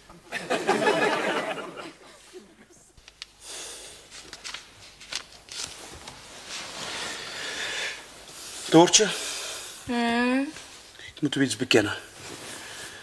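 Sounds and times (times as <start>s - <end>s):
audience laughter: 0.3s - 2.7s
soft rustling: 4.0s - 9.7s, 11.7s - 13.0s.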